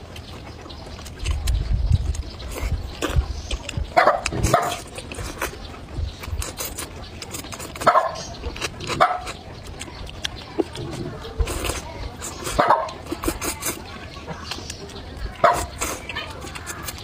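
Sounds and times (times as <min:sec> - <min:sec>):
slurping and chewing noodles: 0:00.1 - 0:17.0
dog barking: 0:04.0 - 0:04.8, 0:07.8 - 0:08.3, 0:09.0 - 0:09.4, 0:12.6 - 0:13.0, 0:15.4 - 0:15.7
wet mouth clicks: 0:06.2 - 0:13.8.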